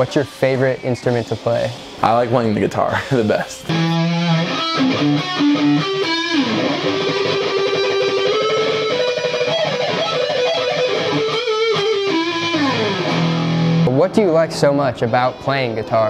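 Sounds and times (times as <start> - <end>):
electric guitar lead: 3.6 - 16.0.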